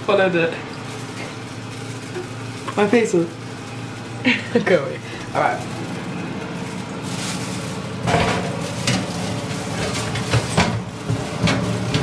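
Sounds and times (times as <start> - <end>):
steady kitchen hiss: 0.0 - 12.0
metal tray clattering on oven rack: 8.0 - 12.0.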